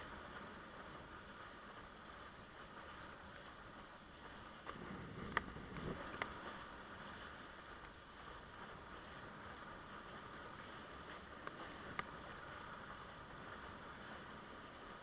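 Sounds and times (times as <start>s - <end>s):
rush of water and wind: 0.0s - 15.0s.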